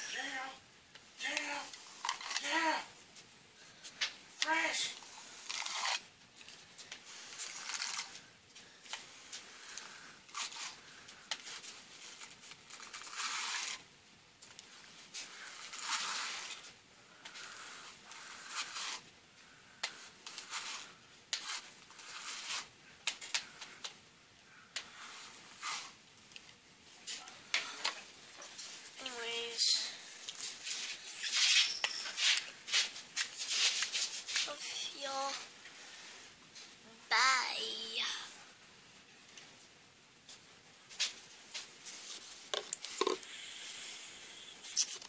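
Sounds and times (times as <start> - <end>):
hairbrush brushing hair: 20.3 - 22.7.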